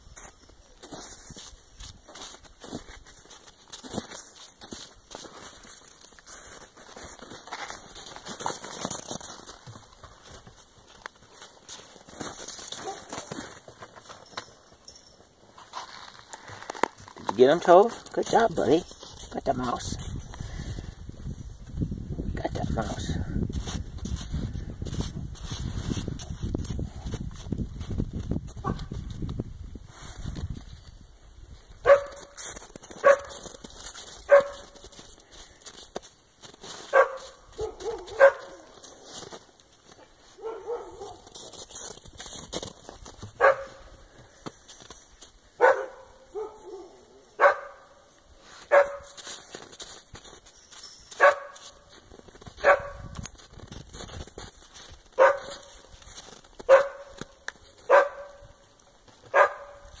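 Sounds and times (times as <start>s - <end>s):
dog barking: 12.8s - 13.3s, 31.8s - 32.4s, 33.0s - 33.4s, 34.3s - 34.8s, 36.9s - 38.7s, 40.4s - 41.2s, 43.4s - 43.8s, 45.6s - 48.0s, 48.7s - 49.1s, 51.2s - 51.7s, 52.6s - 53.1s, 55.2s - 55.7s, 56.7s - 57.2s, 57.8s - 58.6s, 59.3s - 60.0s.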